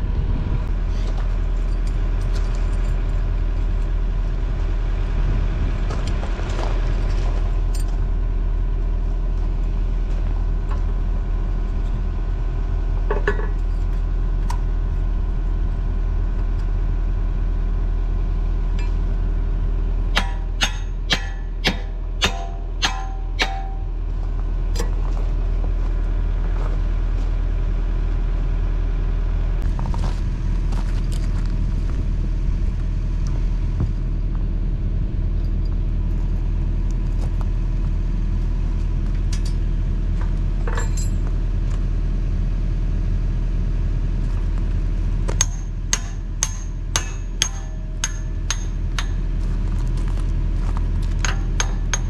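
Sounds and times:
diesel engine idling: 0:00.0 - 0:52.0
hammer blows on metal: 0:20.1 - 0:24.0, 0:45.4 - 0:49.2.

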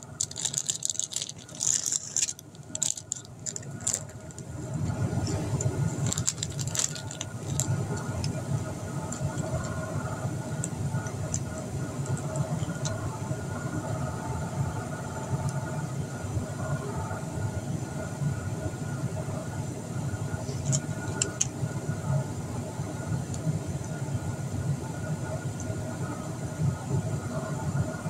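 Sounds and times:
low mechanical drone: 0:00.0 - 0:28.0
plastic toy pieces clicking: 0:00.2 - 0:04.1.

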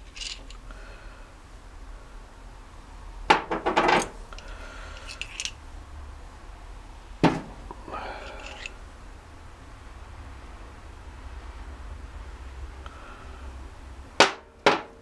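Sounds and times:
metal parts clinking on steel bench: 0:00.0 - 0:00.6, 0:03.6 - 0:05.6, 0:08.2 - 0:08.8.

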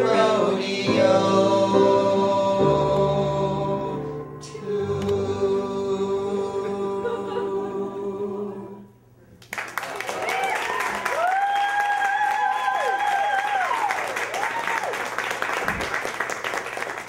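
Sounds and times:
man and woman singing duet: 0:00.0 - 0:09.0
audience applause with whoops: 0:09.4 - 0:17.0.

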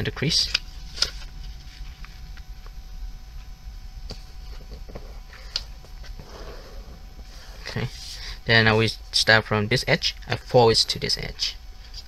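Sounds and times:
paper folding and rustling: 0:00.4 - 0:02.2.

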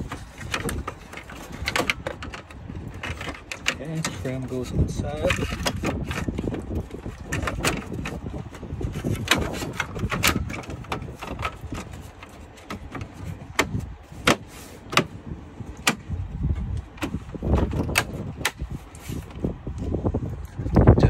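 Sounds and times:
low steady rumble: 0:00.0 - 0:21.0
plastic trim clicks and knocks: 0:15.8 - 0:16.1.

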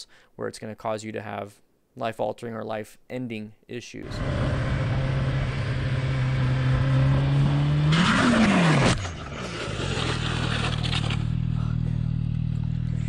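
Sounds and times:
motorcycle scraping on asphalt: 0:04.0 - 0:12.9
motorcycle engine revving: 0:04.0 - 0:13.0.

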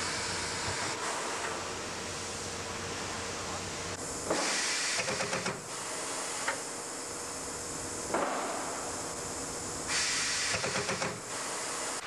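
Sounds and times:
high pressure hissing: 0:04.0 - 0:07.8, 0:08.6 - 0:12.0
loud fluttering hiss: 0:09.8 - 0:12.0.

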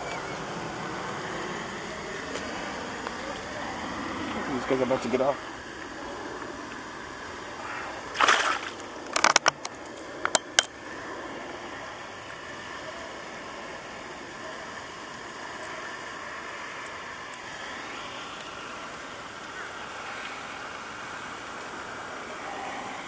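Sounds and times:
fish splashing in water: 0:07.6 - 0:09.4
sharp slaps on water: 0:08.2 - 0:08.8.

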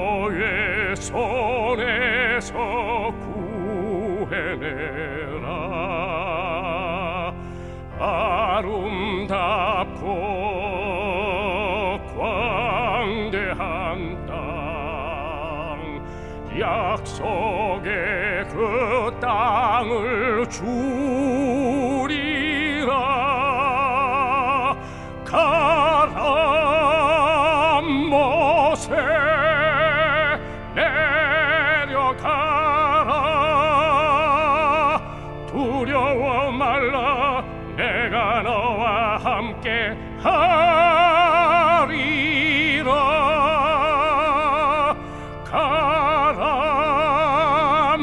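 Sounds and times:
person singing with vibrato: 0:00.0 - 0:48.0
sustained instrumental accompaniment: 0:00.0 - 0:48.0
singer breathing: 0:07.3 - 0:08.0, 0:16.0 - 0:16.5, 0:24.8 - 0:25.3, 0:30.4 - 0:30.7, 0:35.0 - 0:35.4, 0:45.0 - 0:45.5.

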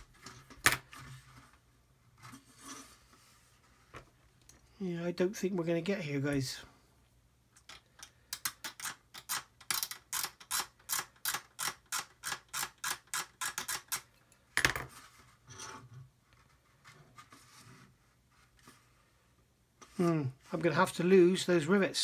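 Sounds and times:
faint irregular scratching: 0:00.0 - 0:04.2, 0:14.9 - 0:21.0.

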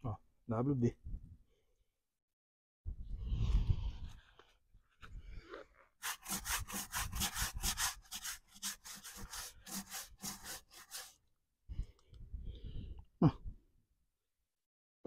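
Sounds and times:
sponge scrubbing rubber tyre: 0:06.0 - 0:11.2.

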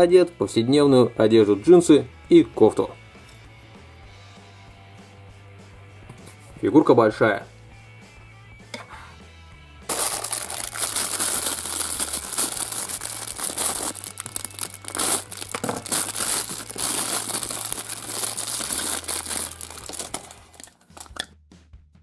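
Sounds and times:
plastic bag crinkling: 0:09.9 - 0:21.2.

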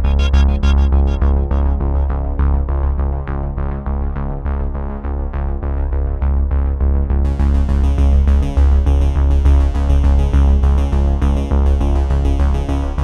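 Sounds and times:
electronic music with steady beat: 0:00.0 - 0:02.7.

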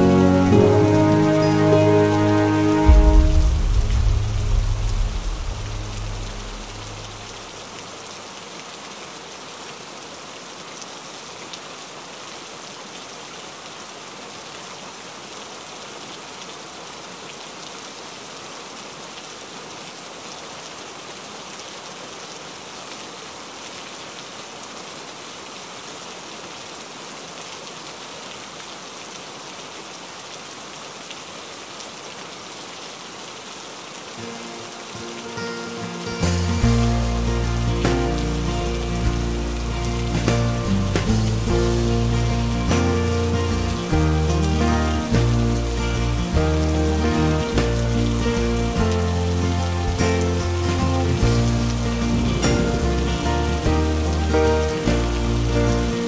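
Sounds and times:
music track: 0:00.0 - 0:07.5, 0:35.0 - 0:56.0
rain on window glass: 0:34.2 - 0:56.0.

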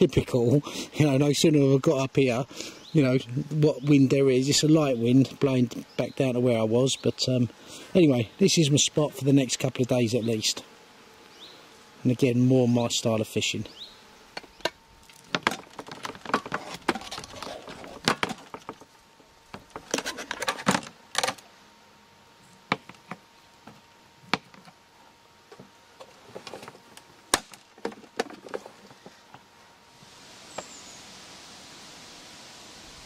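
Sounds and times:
breeze rustling: 0:13.1 - 0:21.6.

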